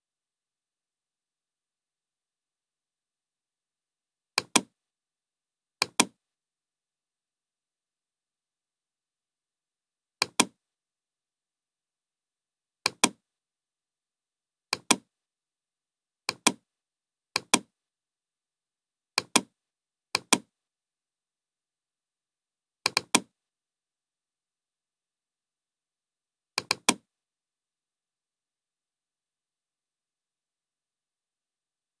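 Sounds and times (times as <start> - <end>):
computer mouse double clicks: 12.9 - 13.2, 26.6 - 27.0.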